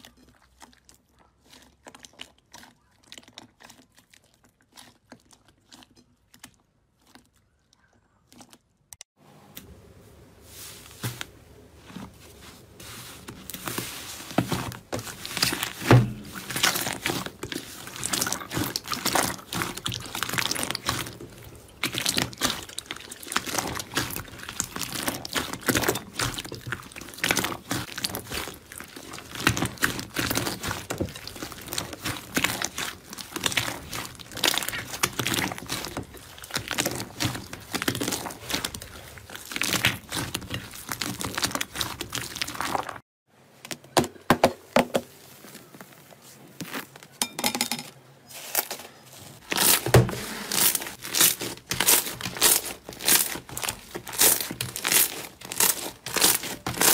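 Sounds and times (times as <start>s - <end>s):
hands squishing slime: 0.0s - 8.9s, 11.0s - 43.0s, 49.4s - 56.9s
slime popping and crackling: 13.4s - 43.0s, 49.4s - 56.9s.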